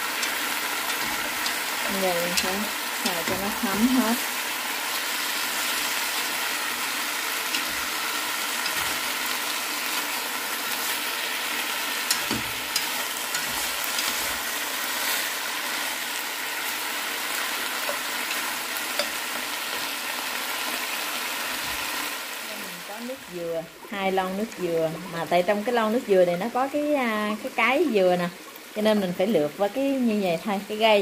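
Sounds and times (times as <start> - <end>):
chicken sizzling in oil: 0.0 - 31.0
chopsticks clicking against pot: 0.1 - 3.7, 7.5 - 7.9, 8.6 - 9.0, 12.0 - 14.4.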